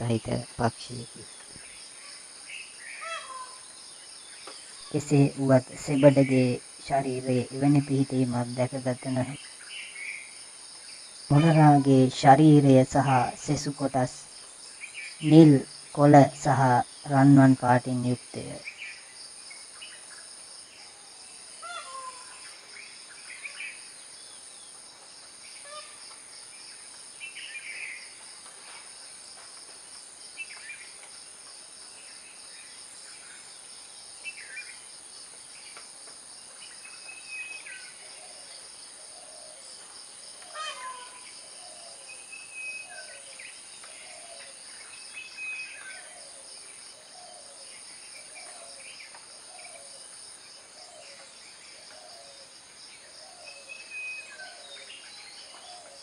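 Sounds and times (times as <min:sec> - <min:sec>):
insects droning: 0:00.0 - 0:56.0
short bird calls: 0:02.9 - 0:03.6, 0:21.6 - 0:22.5, 0:40.5 - 0:41.8.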